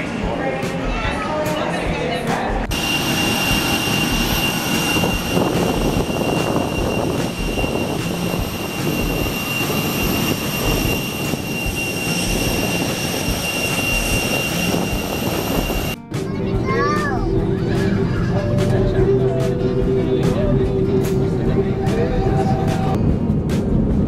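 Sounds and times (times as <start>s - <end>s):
jet engines whining: 2.0s - 16.1s.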